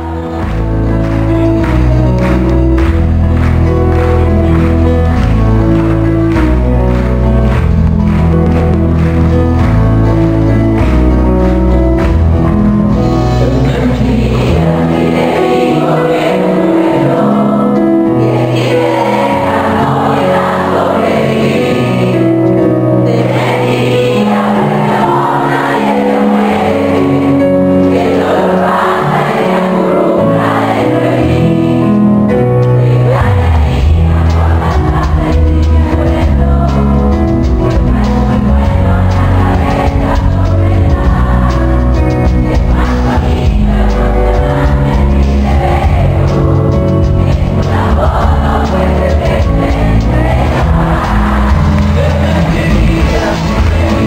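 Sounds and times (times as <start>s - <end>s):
deep bass: 0.0s - 15.3s, 31.4s - 54.0s
keyboard chords: 0.0s - 54.0s
live band music: 0.0s - 54.0s
person singing: 13.0s - 54.0s.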